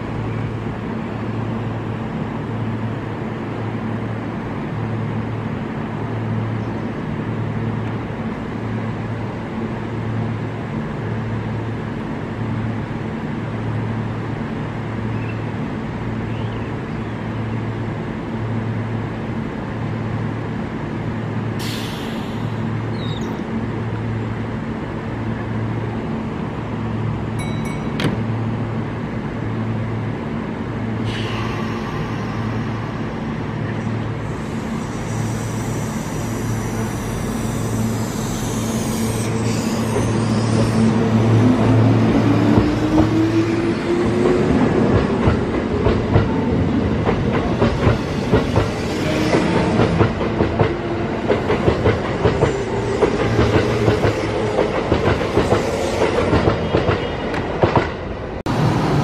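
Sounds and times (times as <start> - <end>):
train equipment pulsing hum: 0.0 - 59.0
air release hiss: 21.6 - 22.7, 34.2 - 40.6.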